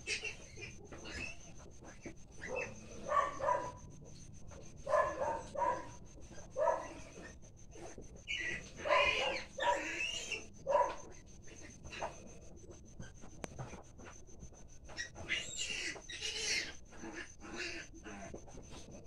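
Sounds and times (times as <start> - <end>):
piglets squealing: 0.0 - 3.7, 6.3 - 11.0, 15.0 - 18.3.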